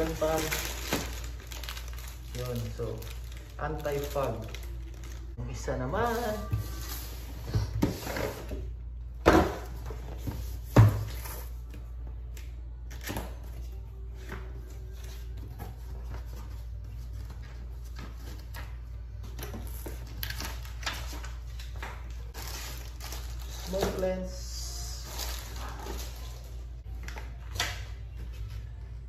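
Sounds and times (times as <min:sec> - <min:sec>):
cardboard and paper rustling: 0:00.0 - 0:05.4, 0:13.0 - 0:24.3, 0:24.9 - 0:27.6.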